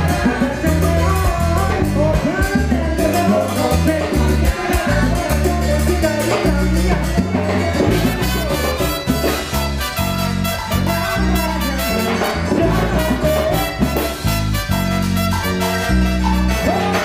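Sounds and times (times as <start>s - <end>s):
salsa orchestra playing: 0.0s - 17.0s.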